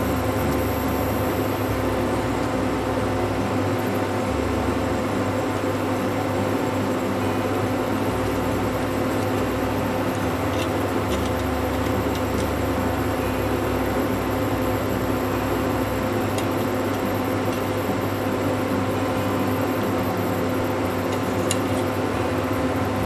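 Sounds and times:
induction cooktop fan hum: 0.0s - 23.0s.

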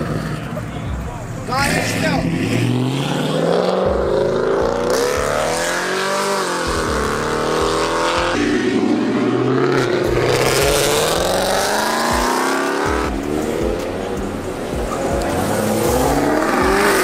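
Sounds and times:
car engines revving: 0.0s - 17.0s.

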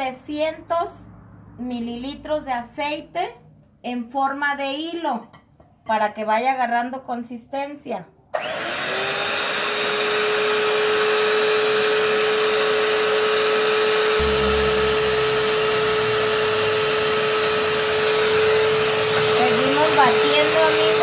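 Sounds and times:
electric mixer motor whine: 8.4s - 21.0s
low rumble: 14.2s - 17.6s.

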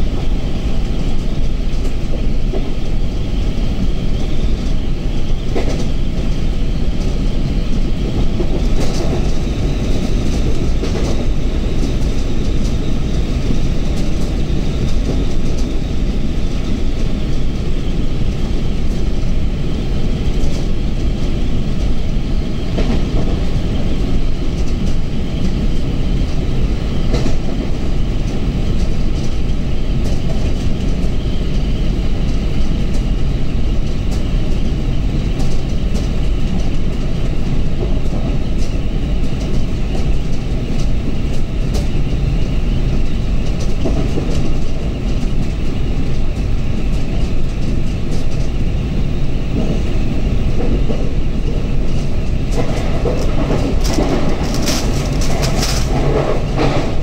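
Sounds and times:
train rumbling along track: 0.0s - 57.0s
wheels clicking on rails: 33.7s - 57.0s.

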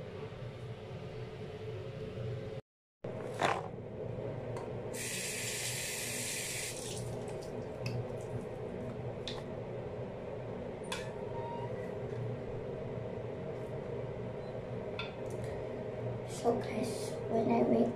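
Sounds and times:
steady background hum: 0.0s - 17.9s
sink tap running: 5.0s - 7.4s.

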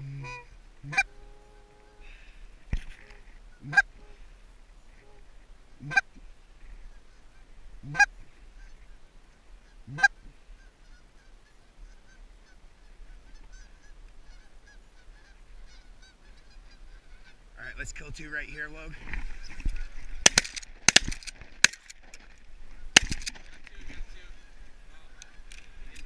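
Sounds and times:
goose call honks: 0.0s - 4.3s, 4.9s - 6.2s, 7.8s - 8.8s, 9.6s - 17.4s
distant flock of geese honking: 0.0s - 20.4s, 22.7s - 26.0s.

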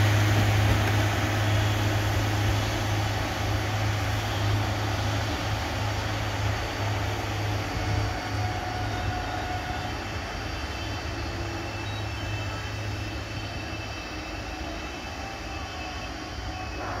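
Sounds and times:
diesel engine drone: 0.0s - 17.0s.

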